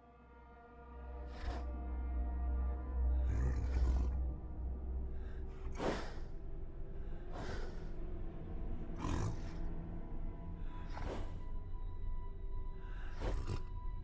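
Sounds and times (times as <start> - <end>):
low steady drone: 0.0 - 14.0
slow heavy breaths: 2.9 - 14.0.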